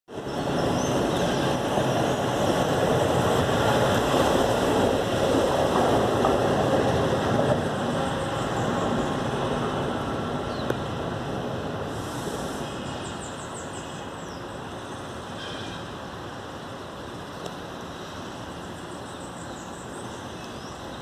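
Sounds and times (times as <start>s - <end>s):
electric train rumbling on rails: 0.1s - 21.0s.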